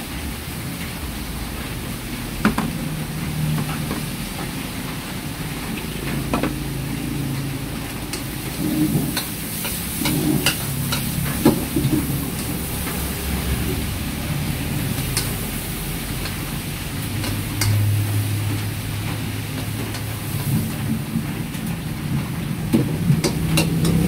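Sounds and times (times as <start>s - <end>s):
flame roaring: 0.0s - 24.0s
food sizzling in wok: 0.0s - 24.0s
metal ladle scraping wok: 8.1s - 19.0s.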